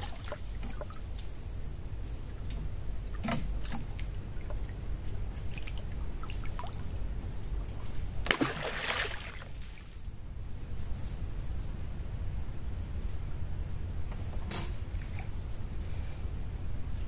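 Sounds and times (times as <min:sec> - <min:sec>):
water splashing and dripping: 0:00.0 - 0:01.3, 0:08.2 - 0:09.9.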